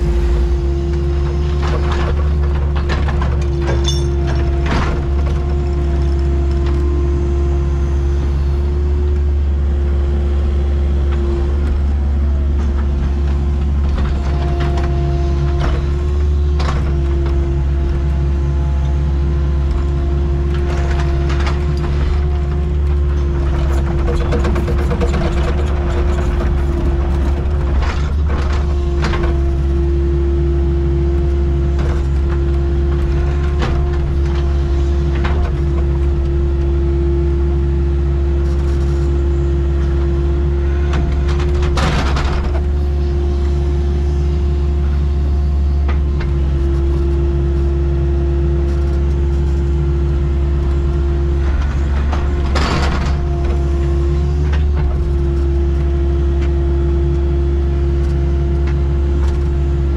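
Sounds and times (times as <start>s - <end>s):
constant whine: 0.0s - 59.9s
excavator diesel engine: 0.0s - 59.9s
machine clanks: 1.6s - 5.2s.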